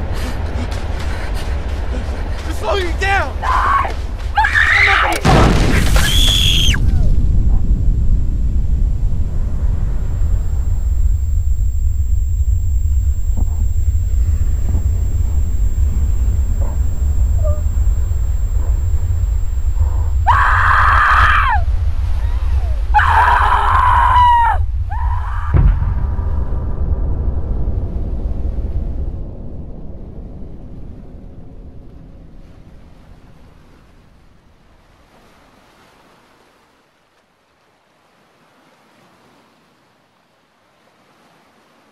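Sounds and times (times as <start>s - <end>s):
faint outdoor rushing noise: 0.0s - 41.9s
woman screaming: 3.4s - 5.2s, 6.0s - 7.1s, 20.2s - 21.6s, 22.2s - 25.6s
low rumble: 5.3s - 34.0s
thump: 25.5s - 26.1s.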